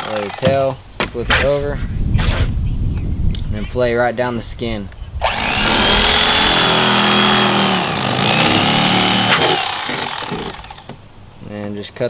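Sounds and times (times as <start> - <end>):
electric knife motor whine: 5.2 - 10.9.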